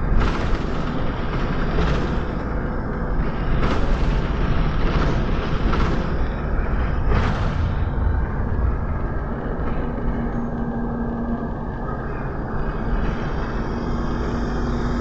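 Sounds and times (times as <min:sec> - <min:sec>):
bus engine and road rumble: 0:00.0 - 0:15.0
rattling surges: 0:05.2 - 0:11.8.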